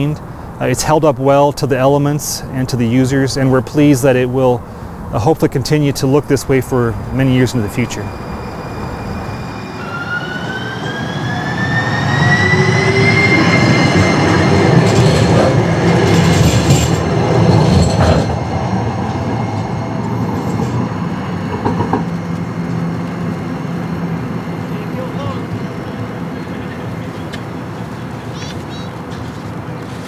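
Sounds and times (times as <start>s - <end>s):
wheels rumbling on rails: 1.7s - 30.0s
streetcar motor whine: 6.0s - 30.0s.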